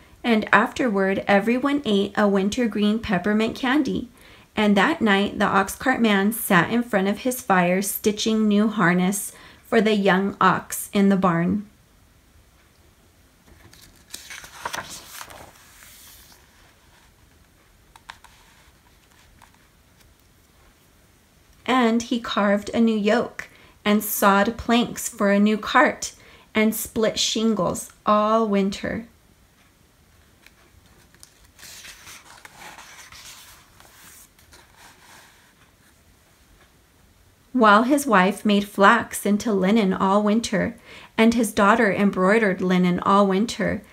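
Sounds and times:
book page turning: 13.4s - 20.8s, 30.4s - 36.0s.

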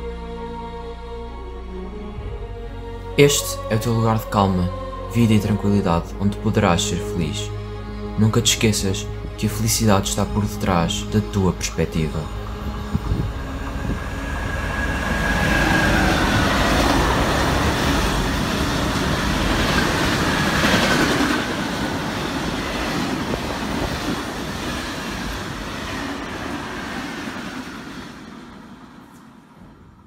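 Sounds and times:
train rumble and rattle: 9.0s - 30.0s
high wheel squeal: 12.8s - 20.9s.

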